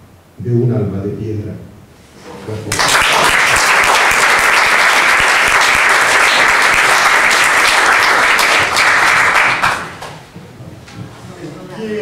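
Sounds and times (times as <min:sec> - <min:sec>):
audience applauding: 0:02.6 - 0:10.3.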